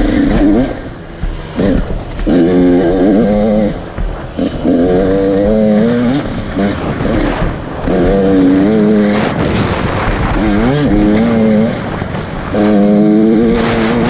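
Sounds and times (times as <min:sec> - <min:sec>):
dirt bike engine revving: 0:00.0 - 0:14.0.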